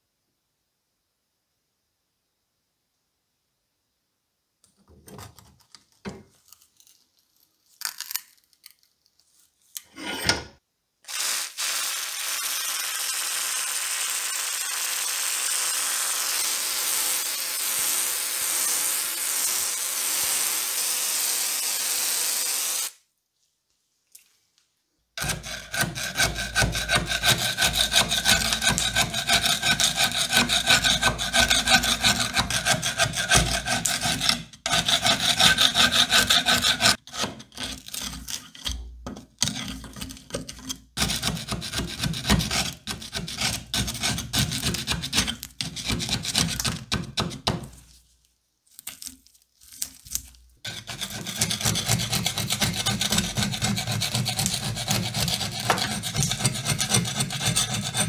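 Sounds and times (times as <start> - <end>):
screwdriver scraping rust off metal: 25.2 - 47.4, 50.7 - 58.0.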